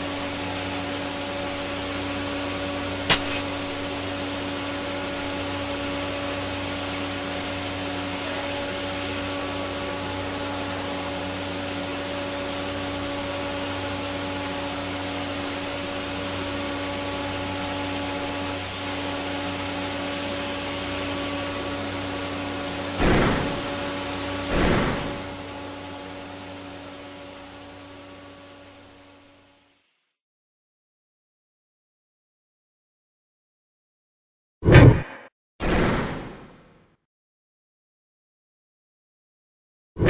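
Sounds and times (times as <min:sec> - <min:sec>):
loud burst of noise: 0:00.0 - 0:13.7, 0:22.9 - 0:25.8
aerator rushing hiss: 0:00.0 - 0:25.8
low motor hum: 0:00.0 - 0:26.6.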